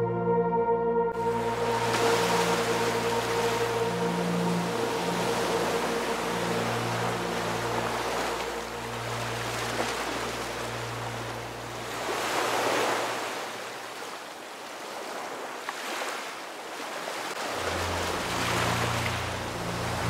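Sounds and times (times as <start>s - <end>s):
low background music: 0.0s - 12.4s, 17.4s - 20.0s
ocean surf washing ashore: 1.2s - 20.0s.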